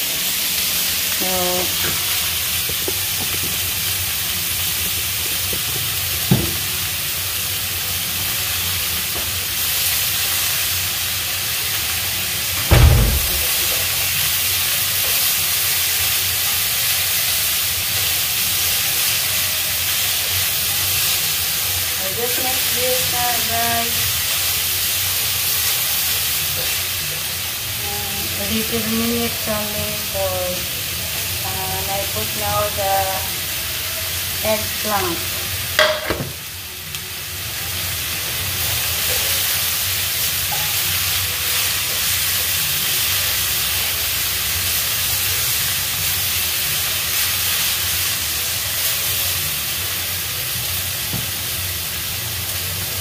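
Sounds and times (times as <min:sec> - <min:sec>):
vegetables sizzling in a frying pan: 0:00.0 - 0:53.0
loud thump: 0:12.7 - 0:13.8.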